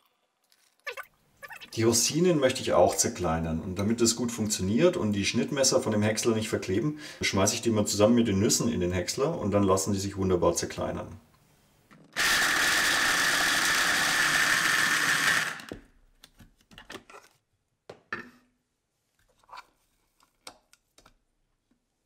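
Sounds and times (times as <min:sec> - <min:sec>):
electric food chopper running: 0:12.2 - 0:15.8.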